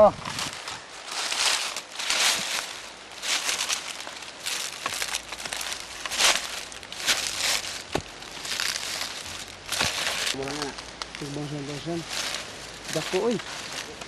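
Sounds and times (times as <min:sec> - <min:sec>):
dry leaves crackling underfoot: 0:00.0 - 0:14.0
undergrowth rustling and swishing: 0:00.0 - 0:14.0.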